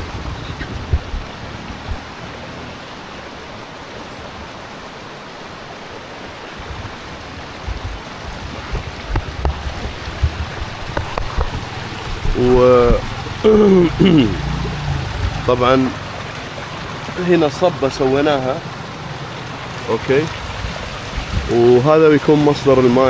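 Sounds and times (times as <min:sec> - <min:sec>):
low rumbling bumps: 0:00.0 - 0:03.1, 0:06.5 - 0:23.0
wind rushing hiss: 0:06.4 - 0:17.0.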